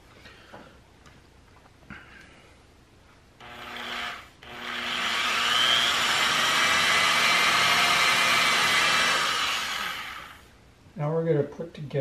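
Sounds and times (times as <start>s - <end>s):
electric drill boring through wood: 3.4s - 10.5s.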